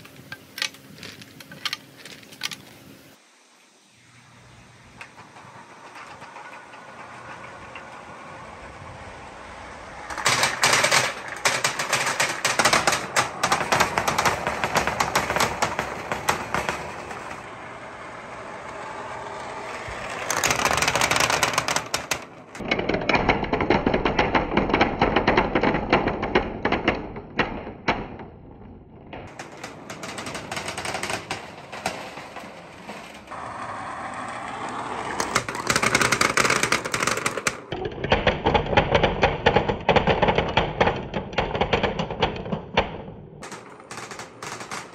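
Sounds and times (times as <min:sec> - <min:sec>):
small balls rattling through plastic tube: 0:09.4 - 0:17.5, 0:18.4 - 0:28.1, 0:29.2 - 0:33.4, 0:34.1 - 0:42.3, 0:43.4 - 0:44.9.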